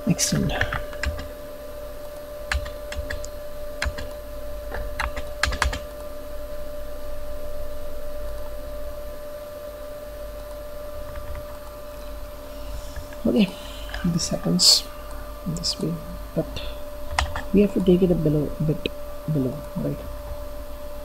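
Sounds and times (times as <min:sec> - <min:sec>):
electrical hum: 0:00.0 - 0:21.0
keyboard keystrokes: 0:04.7 - 0:06.0.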